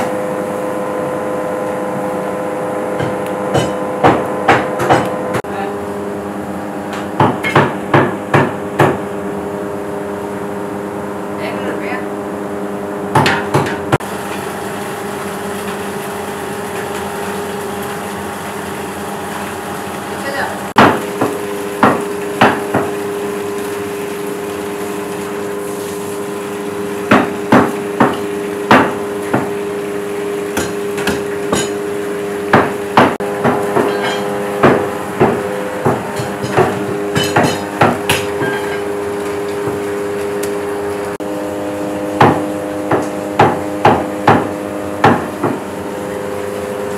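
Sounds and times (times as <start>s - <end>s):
metal ladle clanking on steel pots: 30.5s - 31.9s, 33.5s - 39.8s.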